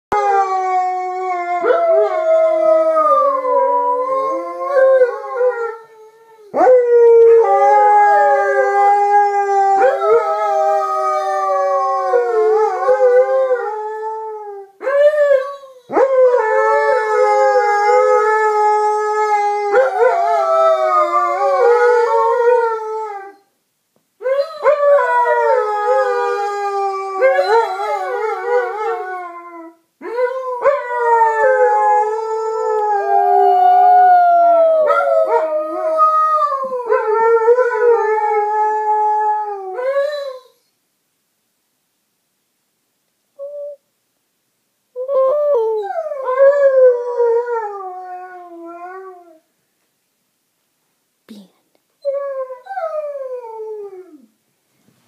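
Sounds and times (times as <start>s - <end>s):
dogs howling: 24.2s - 40.4s.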